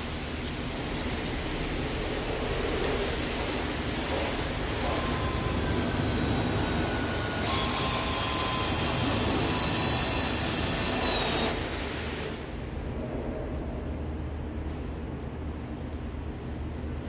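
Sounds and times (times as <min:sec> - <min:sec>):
cordless drill boring into wood: 0:06.6 - 0:11.7.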